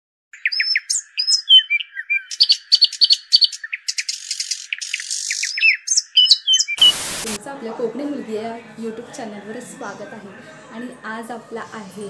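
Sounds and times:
songbirds chirping and whistling: 0.3 - 7.3.

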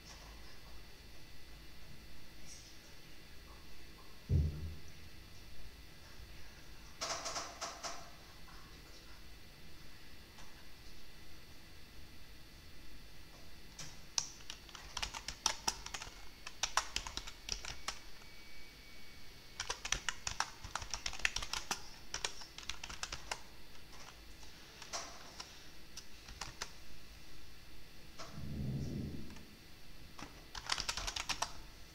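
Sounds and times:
keyboard typing: 7.0 - 8.1, 13.8 - 18.2, 19.6 - 24.2, 24.8 - 26.8, 30.2 - 31.6.

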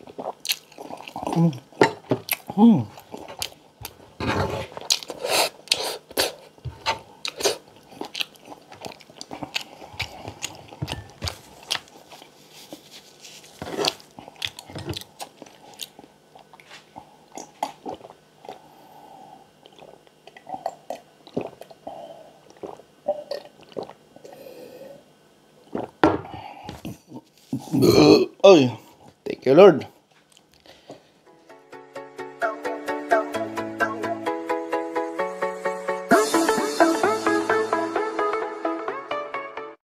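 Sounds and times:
chewing crunchy food: 0.0 - 4.0, 4.6 - 18.7.

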